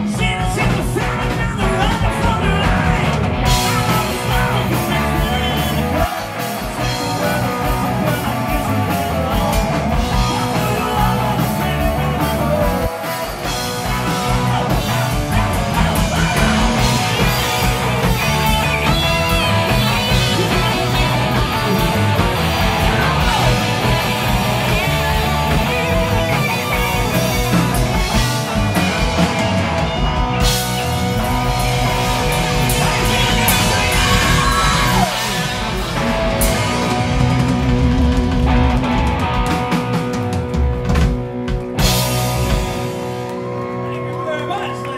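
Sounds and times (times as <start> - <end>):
man singing: 0.0 - 26.9, 31.8 - 35.8
distorted electric guitars: 0.0 - 44.9
drum kit: 0.0 - 44.9.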